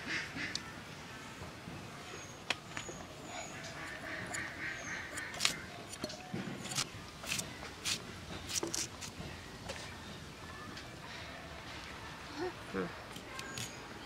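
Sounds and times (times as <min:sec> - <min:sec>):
nasal bird calls: 0:02.9 - 0:06.0
blade cutting vegetables: 0:05.1 - 0:09.1.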